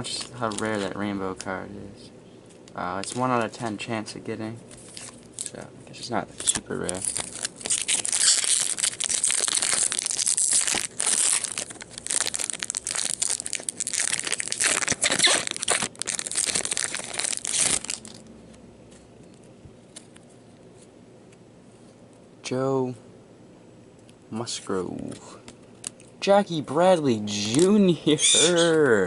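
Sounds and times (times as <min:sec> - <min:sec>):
foil wrapper crinkling: 0:00.0 - 0:01.6, 0:06.4 - 0:18.3.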